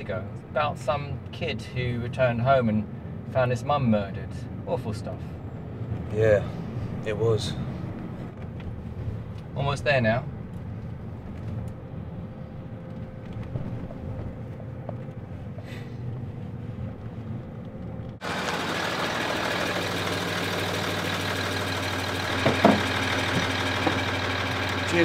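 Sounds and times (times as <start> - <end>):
car interior rumble: 0.0 - 25.0
vehicle engine idling: 10.2 - 25.0.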